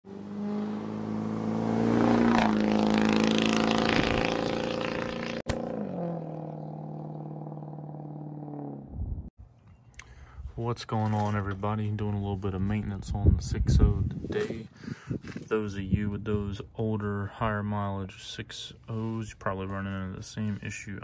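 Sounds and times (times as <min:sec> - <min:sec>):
truck engine accelerating: 0:00.1 - 0:09.3.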